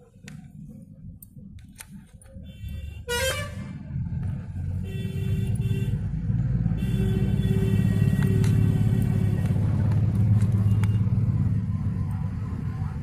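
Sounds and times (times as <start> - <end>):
vehicle engine rumble passing: 0.4 - 13.0
vehicle horn honk: 2.5 - 3.7, 6.8 - 9.5.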